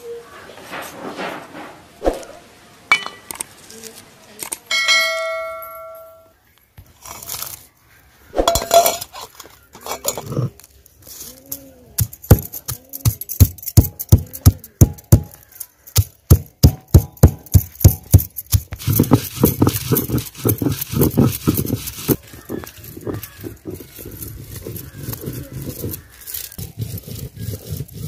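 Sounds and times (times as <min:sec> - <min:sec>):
stone roller scraping slab: 0:00.6 - 0:02.4, 0:08.4 - 0:15.4, 0:16.0 - 0:28.0
metallic clink: 0:04.7 - 0:06.3, 0:08.4 - 0:10.4, 0:11.4 - 0:18.7
stone roller pounding on slab: 0:12.0 - 0:15.4, 0:16.0 - 0:28.0.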